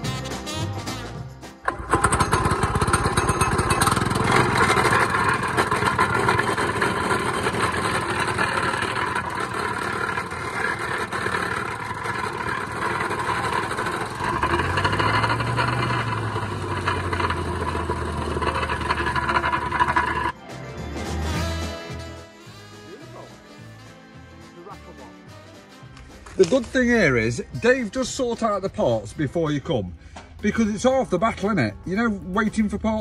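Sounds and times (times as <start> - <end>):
plate compactor pounding on gravel: 1.6 - 20.4
petrol engine running fast: 1.6 - 23.6.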